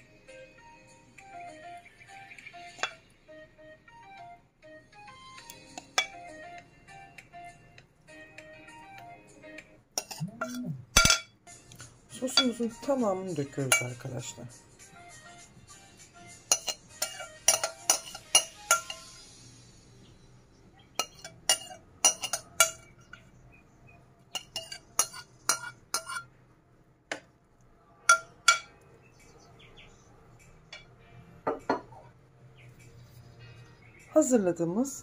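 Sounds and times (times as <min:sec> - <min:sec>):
spoon clinking against dish: 0:02.7 - 0:03.1, 0:05.5 - 0:06.3, 0:10.0 - 0:11.4, 0:12.3 - 0:12.8, 0:13.6 - 0:14.1, 0:16.5 - 0:19.3, 0:21.0 - 0:23.3, 0:24.3 - 0:26.3, 0:28.1 - 0:28.8, 0:30.7 - 0:32.1.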